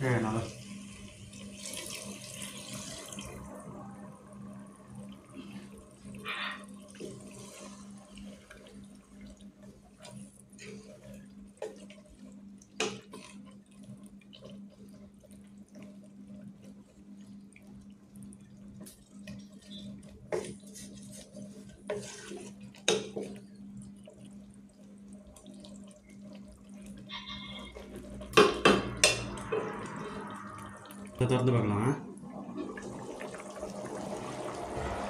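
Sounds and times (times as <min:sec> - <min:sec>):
spatula stirring gravy in a pot: 0:06.8 - 0:30.0
low hum: 0:26.8 - 0:35.0.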